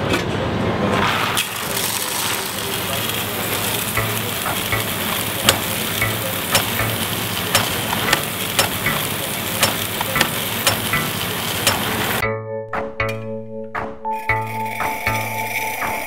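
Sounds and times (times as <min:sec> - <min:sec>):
coffee grinder grinding: 0:01.1 - 0:12.2
sharp grinder clicks: 0:01.4 - 0:12.0
music: 0:04.0 - 0:11.3, 0:12.2 - 0:16.0.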